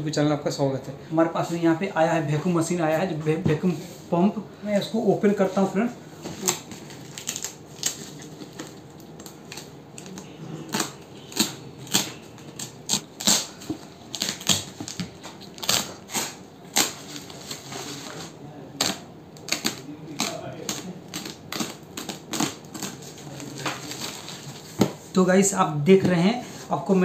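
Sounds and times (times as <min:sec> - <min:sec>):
plastic packaging tearing: 0:06.3 - 0:24.8
tape crinkling and ripping: 0:06.3 - 0:24.9.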